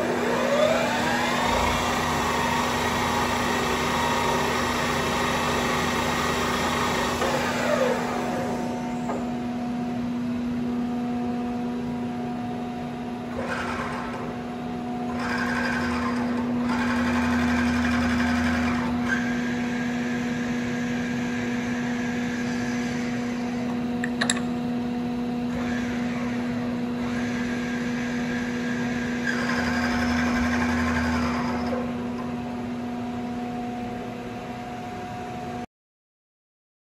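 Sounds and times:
machine drives whining: 0.0 - 9.7
milling machine humming: 0.0 - 35.6.

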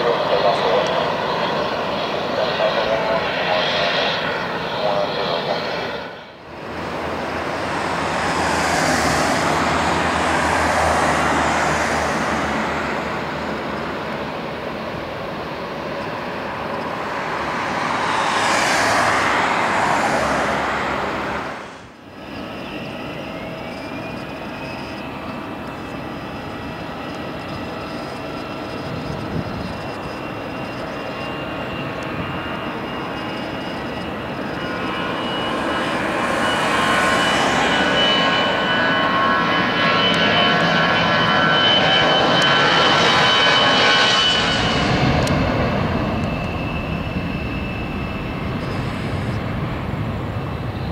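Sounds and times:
jet engines whining: 0.0 - 50.9
jet takeoff roar: 0.0 - 50.9.

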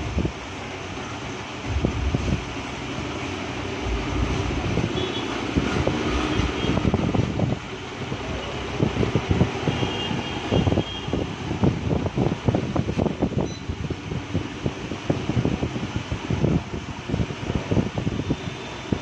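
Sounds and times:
machine running steadily: 0.0 - 9.2.

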